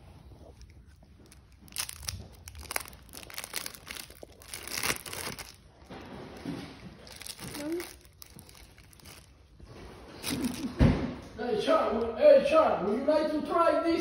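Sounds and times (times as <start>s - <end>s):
plastic wrapper crinkling: 0.3s - 9.6s, 10.2s - 10.8s.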